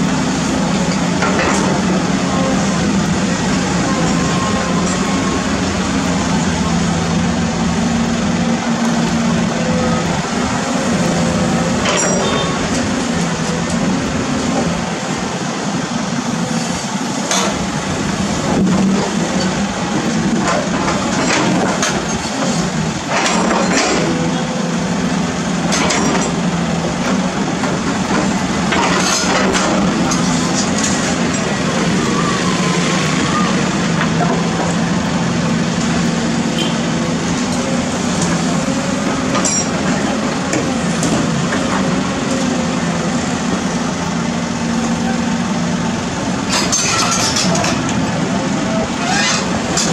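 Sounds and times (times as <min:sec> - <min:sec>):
excavator diesel engine running: 0:00.0 - 0:49.9
bucket and rubble clanking: 0:27.0 - 0:31.6.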